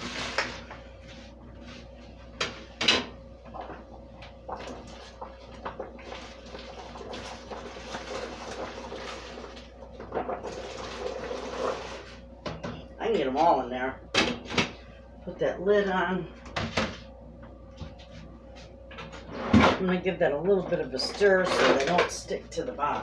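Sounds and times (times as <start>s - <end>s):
boiling water hissing and bubbling: 0.0s - 14.0s.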